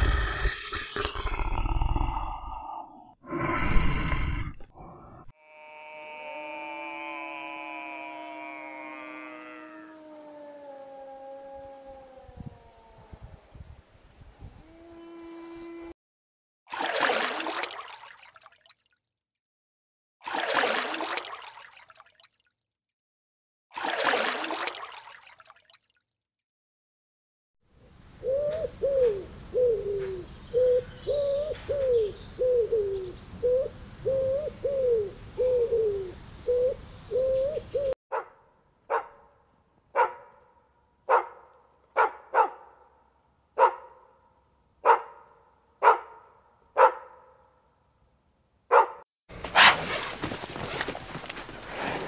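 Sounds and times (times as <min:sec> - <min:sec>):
pigeons cooing: 0:28.2 - 0:38.0
dog barking: 0:38.1 - 0:39.3, 0:39.9 - 0:42.8, 0:43.6 - 0:44.1, 0:44.8 - 0:47.4, 0:48.7 - 0:49.9.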